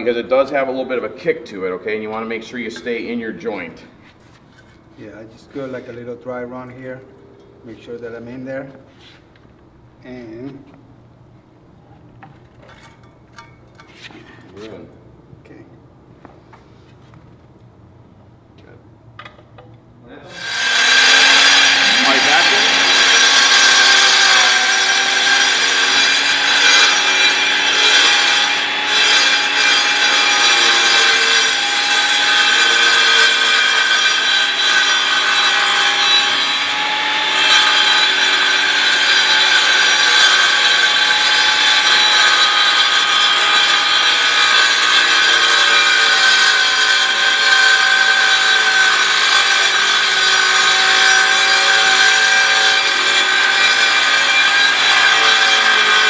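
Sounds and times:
circular saw grinding concrete: 20.3s - 56.0s.

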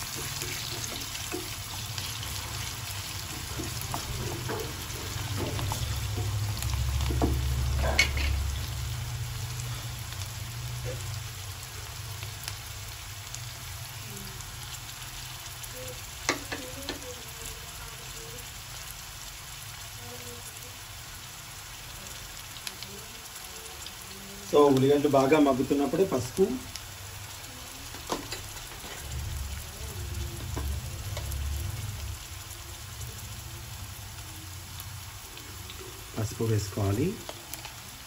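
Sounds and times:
wooden spatula stirring: 0.0s - 8.4s
onions sizzling in oil: 0.0s - 38.0s.

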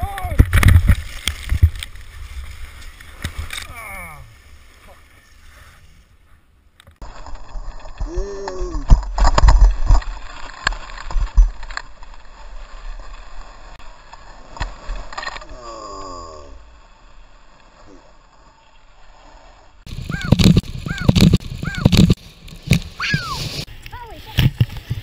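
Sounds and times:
skis scraping on snow: 0.8s - 3.6s, 4.3s - 6.4s, 9.8s - 15.1s, 16.8s - 25.0s
wind rushing over camera: 19.8s - 25.0s.

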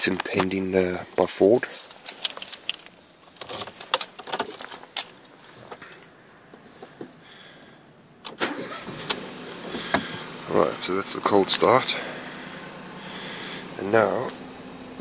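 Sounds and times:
car keys jangling: 1.6s - 5.4s
car engine starting: 8.2s - 15.0s.

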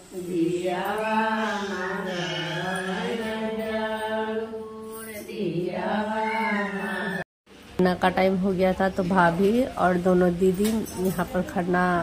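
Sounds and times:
woman singing devotional song: 0.0s - 7.2s.

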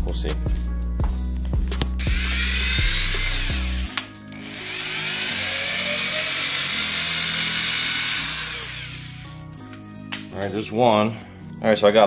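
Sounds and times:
background music: 0.0s - 12.0s
power drill whining: 2.0s - 9.4s.

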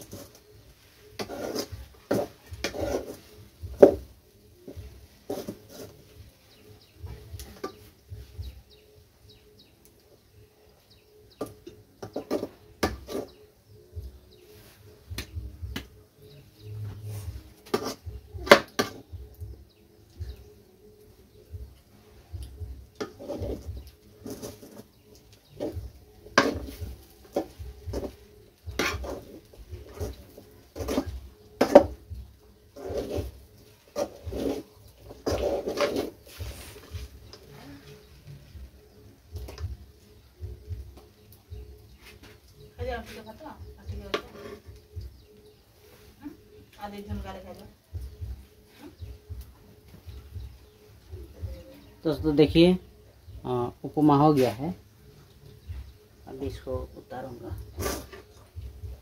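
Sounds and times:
spoon scraping a metal pot: 0.0s - 4.0s, 4.6s - 6.7s, 11.3s - 13.5s, 16.6s - 19.1s, 22.9s - 38.1s, 44.1s - 44.8s, 57.6s - 58.5s
birds chirping faintly: 0.0s - 59.0s.

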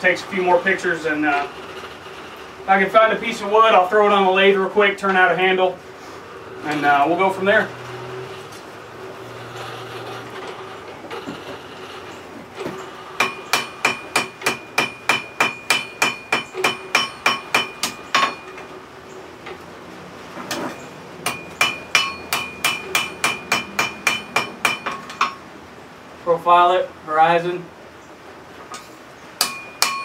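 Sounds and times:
hammer striking metal on anvil: 13.2s - 18.6s, 20.5s - 25.4s, 28.8s - 30.0s.

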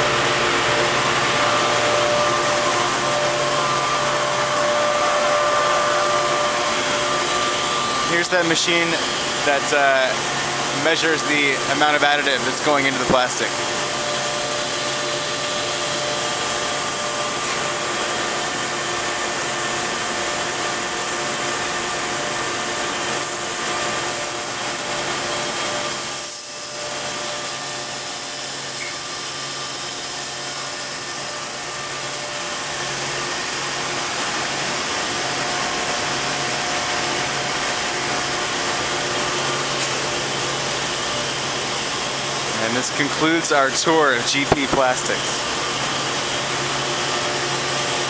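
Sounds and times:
machine hums: 0.0s - 11.7s
factory machinery hissing: 0.0s - 18.5s, 39.7s - 46.3s.

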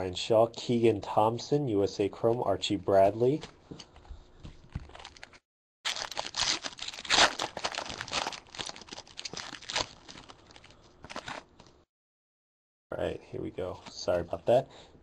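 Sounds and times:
foil wrapper tearing and crinkling: 5.0s - 11.5s.

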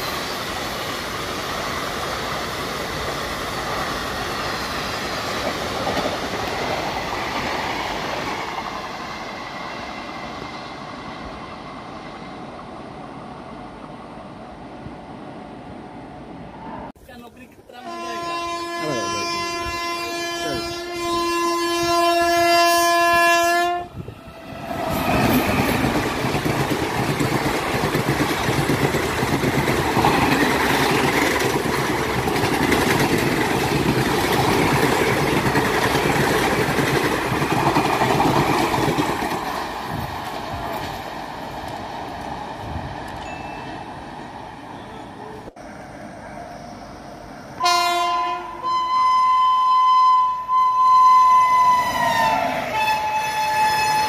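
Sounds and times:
train rumble and wheel clatter: 0.0s - 54.0s
locomotive horn blast: 17.8s - 24.0s, 47.6s - 54.0s.

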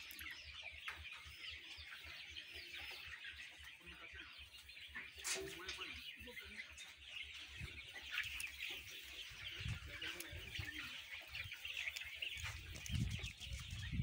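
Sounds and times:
chicks peeping and chirping: 0.0s - 14.0s.

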